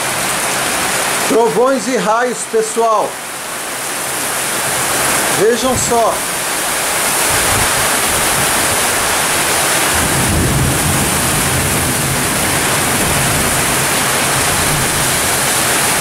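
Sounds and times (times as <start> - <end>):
heavy rain on a street: 0.0 - 16.0
low rumble of thunder: 9.8 - 16.0.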